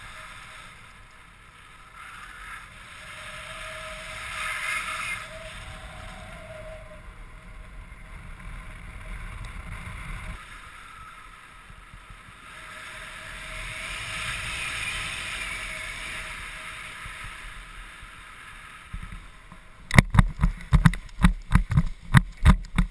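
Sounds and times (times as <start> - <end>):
wind rushing over microphone: 0.0 - 22.9.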